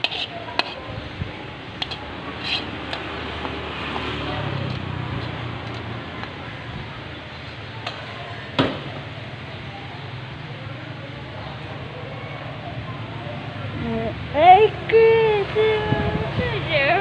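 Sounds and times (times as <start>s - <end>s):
metal spoon scraping a wok: 0.0s - 0.9s, 1.7s - 3.5s
vehicle engine humming: 0.0s - 17.0s.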